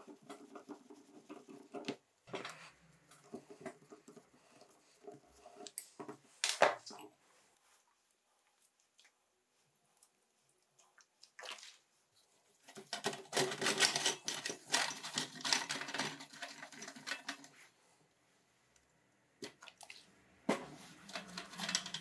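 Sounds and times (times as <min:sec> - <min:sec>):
brush scrubbing metal parts: 0:00.0 - 0:05.8, 0:20.6 - 0:22.0.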